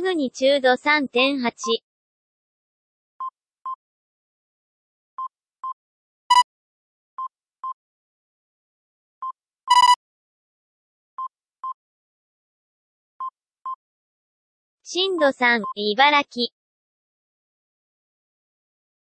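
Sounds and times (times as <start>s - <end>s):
loud buzzy beeps: 9.7s - 10.0s
short high alert beeps: 9.7s - 10.0s.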